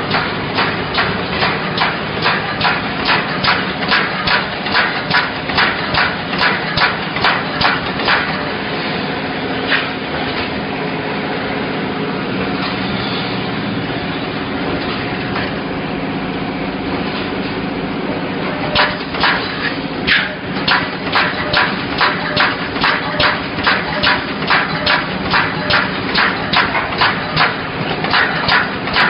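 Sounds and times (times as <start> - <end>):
welding machine rhythmic knocking: 0.0 - 8.8, 18.4 - 29.0
steady mechanical hum: 0.0 - 29.0.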